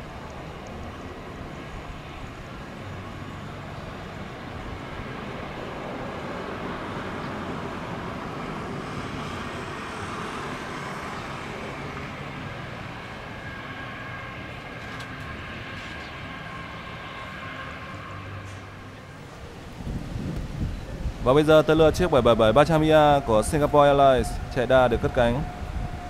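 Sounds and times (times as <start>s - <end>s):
jet engine rumble: 0.0s - 26.0s.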